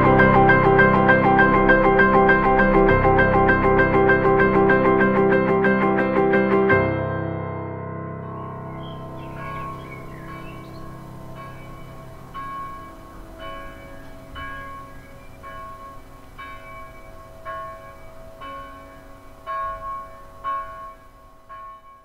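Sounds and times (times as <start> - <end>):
bell ringing: 8.5 - 22.0.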